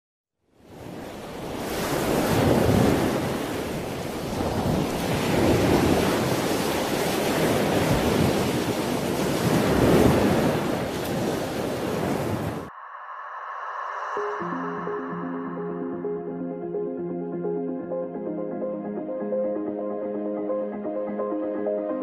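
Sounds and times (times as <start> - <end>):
sea waves breaking: 0.7 - 15.3
wind buffeting microphone: 0.9 - 12.7.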